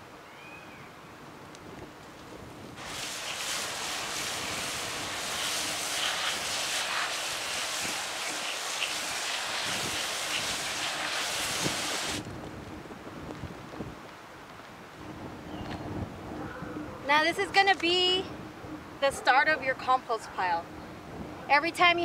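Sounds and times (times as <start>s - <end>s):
water spraying onto compost: 2.8s - 12.2s.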